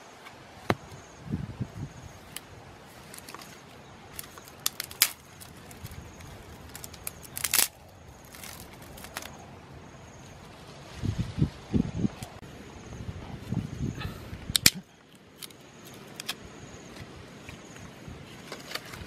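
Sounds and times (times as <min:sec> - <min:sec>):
dry sticks cracking: 0:02.2 - 0:09.4, 0:14.5 - 0:16.4.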